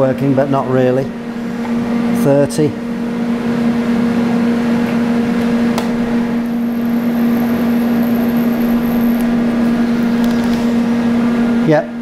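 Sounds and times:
steady hum: 0:00.0 - 0:12.0
faint high whine of welding arc: 0:05.1 - 0:11.9.

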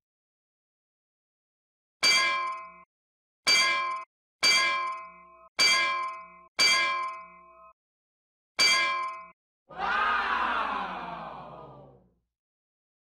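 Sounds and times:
metallic bell-like clang: 0:02.0 - 0:02.9, 0:03.5 - 0:07.8, 0:08.6 - 0:09.4.

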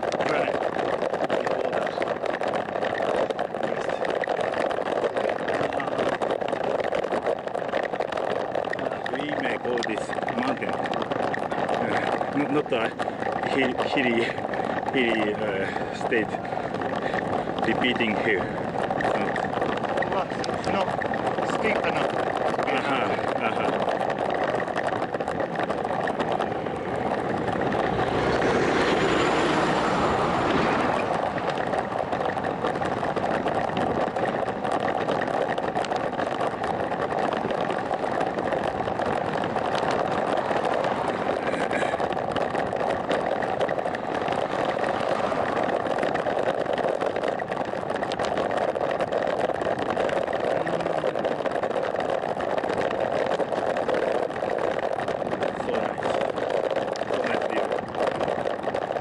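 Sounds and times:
wind on microphone: 0:00.0 - 0:59.0
vehicle passing: 0:26.2 - 0:33.5, 0:43.9 - 0:46.3.

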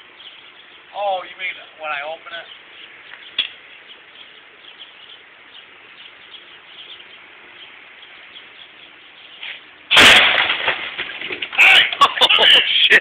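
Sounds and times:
faint bird chirps: 0:00.0 - 0:09.9
steady low hiss: 0:00.0 - 0:13.0.

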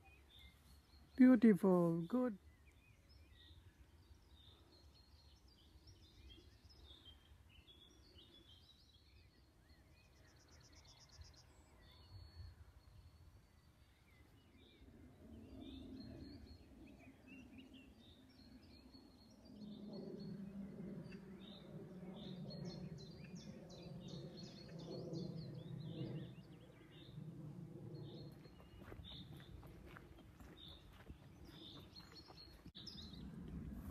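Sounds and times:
birds chirping and singing: 0:14.4 - 0:33.5
low steady rumble: 0:32.8 - 0:33.9.

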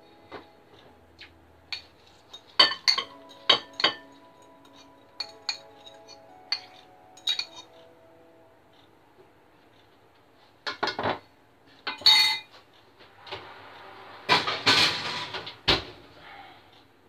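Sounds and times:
metal pans clattering: 0:01.8 - 0:04.1, 0:11.9 - 0:12.5, 0:14.3 - 0:15.8
ringing metal clang: 0:01.8 - 0:04.1, 0:11.9 - 0:12.5.

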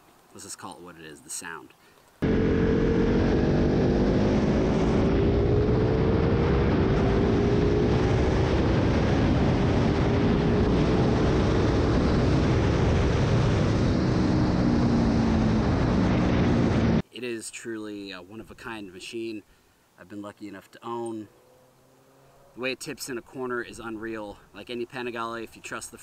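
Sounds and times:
motorcycle engine at speed: 0:02.2 - 0:17.0, 0:21.3 - 0:22.6
wind rushing over microphone: 0:02.2 - 0:17.0.

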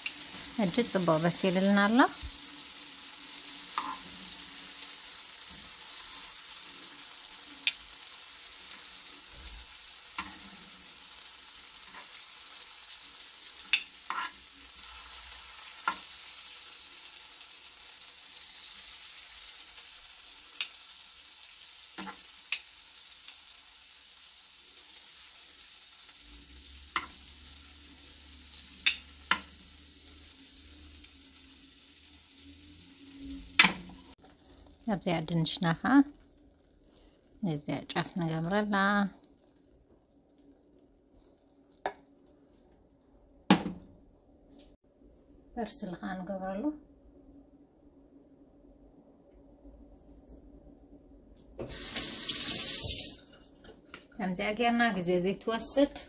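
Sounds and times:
shrimp sizzling in oil: 0:00.0 - 0:42.9, 0:51.6 - 0:53.4
tongs clicking against pan: 0:13.6 - 0:14.3, 0:20.6 - 0:20.8, 0:22.0 - 0:22.7, 0:28.8 - 0:29.5.

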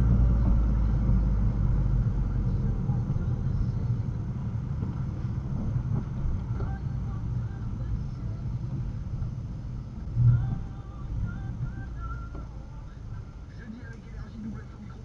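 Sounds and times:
low thump: 0:00.0 - 0:01.9
road and engine rumble in car: 0:00.0 - 0:15.0.

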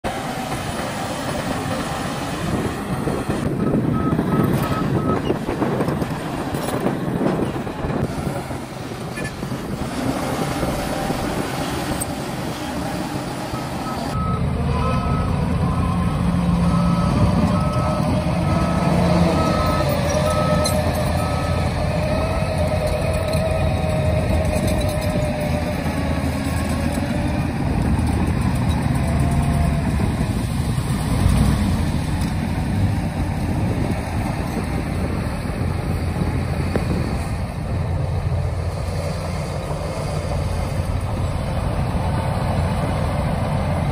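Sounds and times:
bulldozer diesel engine: 0:00.0 - 0:43.9
dump truck engine: 0:00.0 - 0:43.9
reversing alarm beeping: 0:03.4 - 0:05.4, 0:13.4 - 0:23.4.

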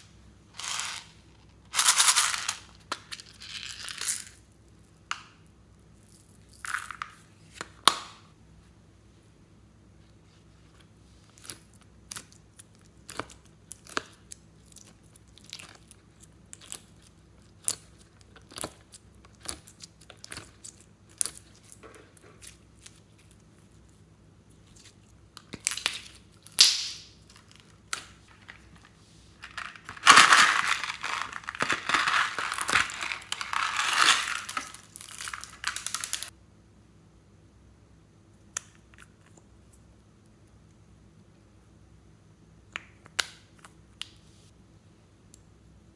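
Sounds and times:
slime crackling: 0:29.5 - 0:36.3.

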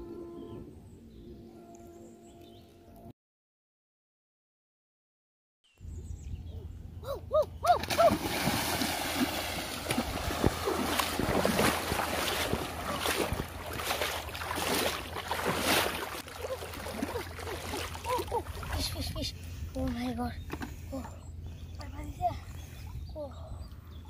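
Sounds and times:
person wading through water: 0:07.8 - 0:20.1.

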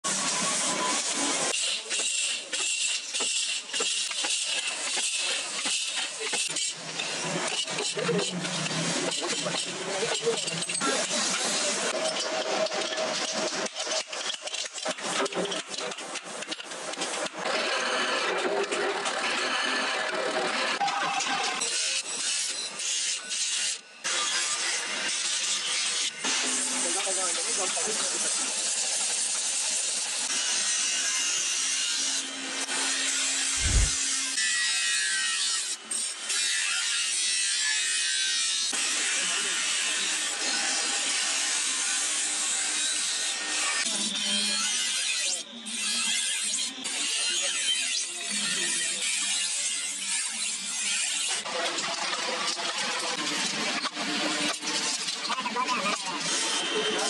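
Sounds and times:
steady rushing noise: 0:33.6 - 0:34.0.

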